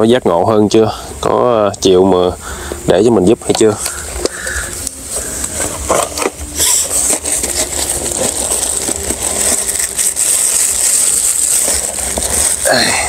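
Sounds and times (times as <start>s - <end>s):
high-pitched drone: 2.9s - 13.0s
bag rustling: 3.8s - 13.0s.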